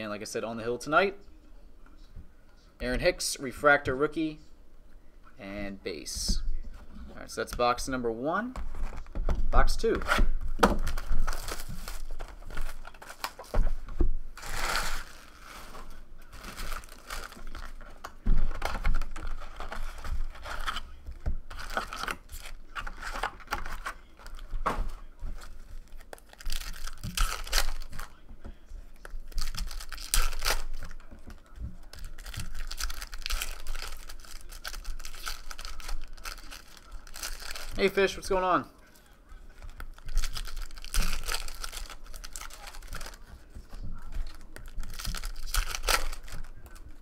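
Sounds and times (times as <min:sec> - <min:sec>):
foil packs tearing and crinkling: 0:10.8 - 0:13.6, 0:14.4 - 0:17.8, 0:21.5 - 0:24.5, 0:25.8 - 0:28.1, 0:29.3 - 0:38.4, 0:39.8 - 0:43.3, 0:44.2 - 0:46.8.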